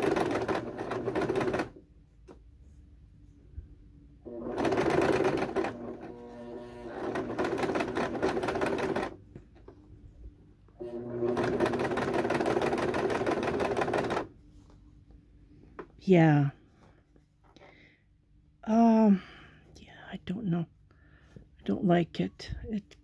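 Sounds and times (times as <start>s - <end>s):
sewing machine stitching: 0.0s - 1.8s, 4.3s - 9.2s, 10.8s - 14.3s.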